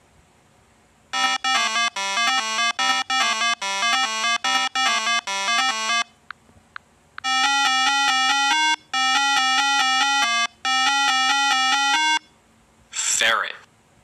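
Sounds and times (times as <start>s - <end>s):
synthesized electronic melody: 1.2s - 6.1s, 7.2s - 12.2s.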